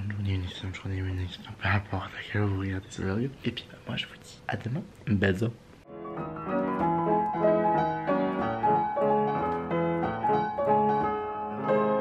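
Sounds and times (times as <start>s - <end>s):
gentle piano melody: 5.8s - 12.0s.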